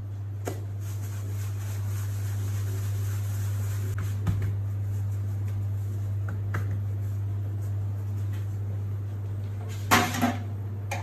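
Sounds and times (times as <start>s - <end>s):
low machine hum: 0.0s - 11.0s
hands tapping dough on counter: 6.2s - 7.0s.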